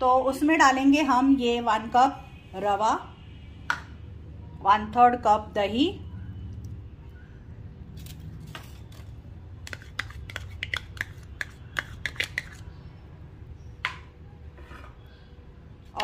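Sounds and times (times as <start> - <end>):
spoon scraping plastic cup: 8.8 - 12.8.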